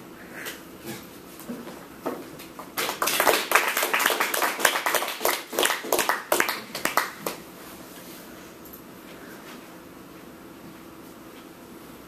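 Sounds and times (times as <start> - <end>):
audience applauding: 2.8 - 7.4.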